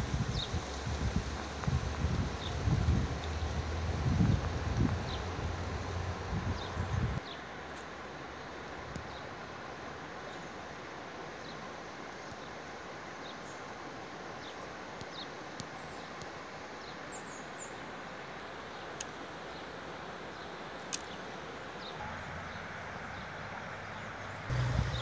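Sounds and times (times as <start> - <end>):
low rumble: 24.5 - 25.0.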